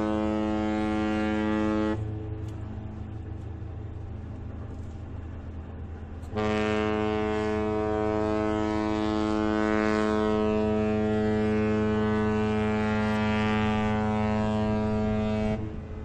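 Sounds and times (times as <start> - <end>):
ship's horn blast: 0.0 - 2.6, 6.2 - 16.0
low rumble: 0.0 - 16.0.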